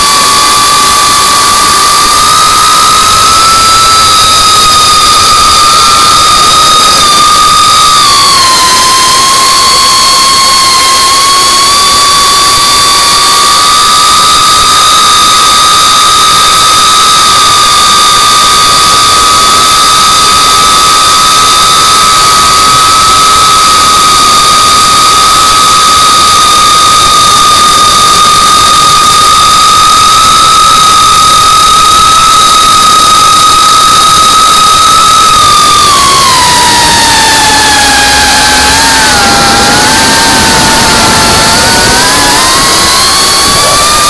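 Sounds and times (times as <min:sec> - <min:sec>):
drone propellers whining: 0:35.6 - 0:44.0.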